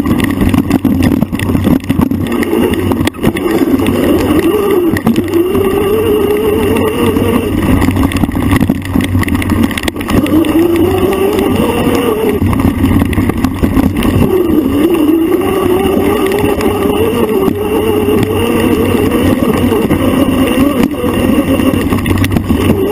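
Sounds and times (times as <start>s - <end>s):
low rumble: 0.0s - 22.9s
off-road bike motor revving: 0.0s - 22.9s.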